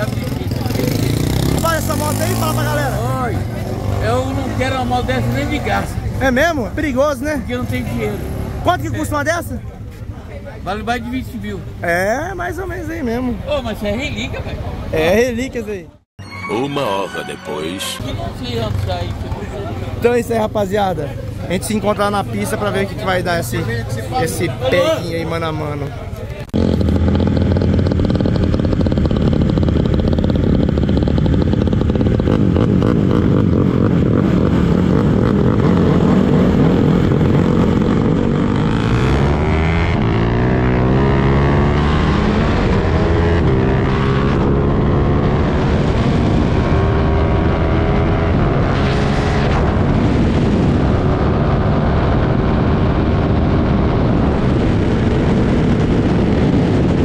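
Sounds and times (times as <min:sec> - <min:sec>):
motorcycle engine accelerating: 0:00.0 - 0:08.7, 0:26.4 - 0:57.0
wind rush on microphone: 0:45.2 - 0:57.0.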